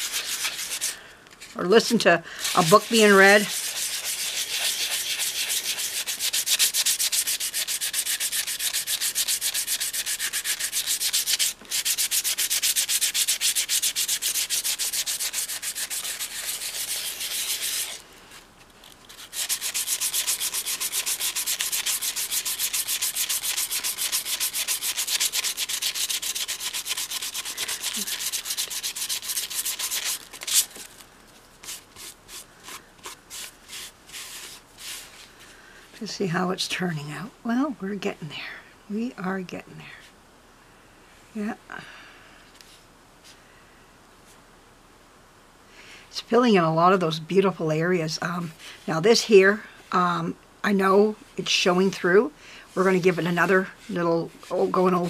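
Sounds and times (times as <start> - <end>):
sandpaper rubbing back and forth: 0.0 - 1.0, 2.4 - 18.0, 19.0 - 31.0, 31.6 - 35.2, 52.8 - 55.0.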